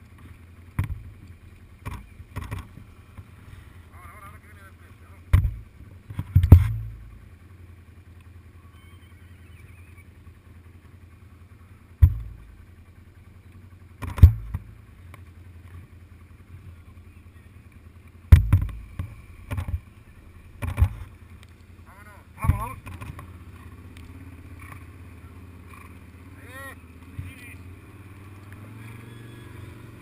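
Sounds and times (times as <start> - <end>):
sharp clicks and knocks: 0.0 - 3.3, 5.3 - 7.0, 14.0 - 15.8, 18.3 - 19.9, 20.6 - 21.7, 22.4 - 24.9
low steady rumble: 0.0 - 30.0.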